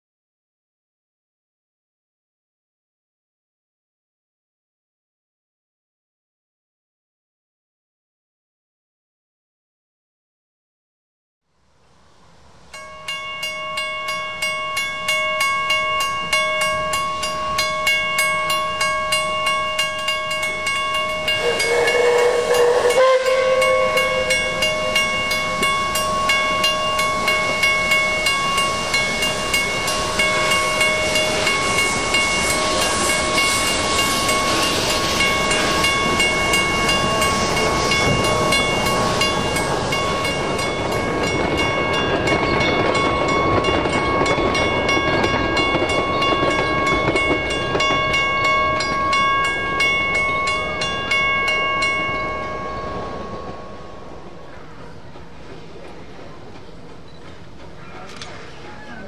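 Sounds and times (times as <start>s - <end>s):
steady high tones: 12.7s - 55.8s
steam locomotive exhaust beats: 13.0s - 59.0s
steam whistle: 21.2s - 40.2s.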